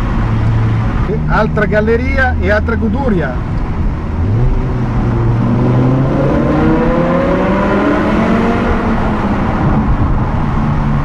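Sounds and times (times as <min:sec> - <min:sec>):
car engine accelerating hard: 0:03.4 - 0:11.0.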